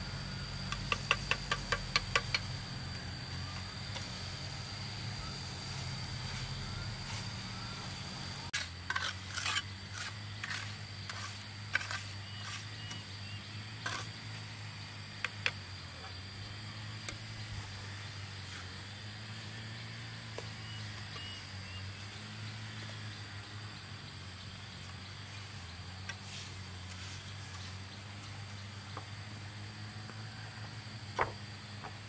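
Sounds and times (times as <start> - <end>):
steady low hum: 0.0 - 32.0
trowel scraping and knocking: 8.6 - 13.0.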